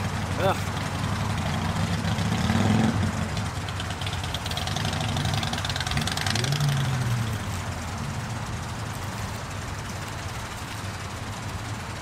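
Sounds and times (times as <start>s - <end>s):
engine revving: 0.0s - 9.0s
car engines idling: 0.0s - 12.0s.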